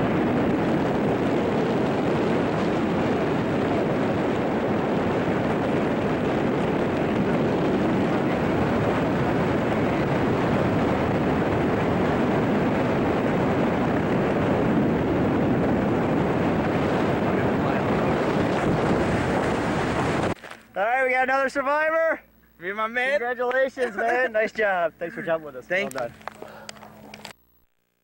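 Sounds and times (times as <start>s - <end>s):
wind buffeting microphone: 0.0s - 20.4s.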